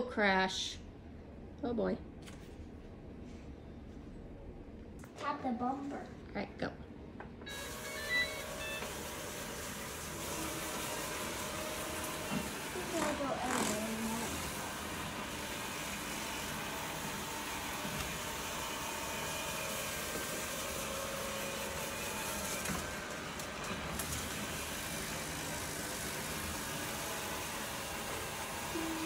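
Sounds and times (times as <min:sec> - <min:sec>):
robot vacuum whirring: 0:07.5 - 0:29.0.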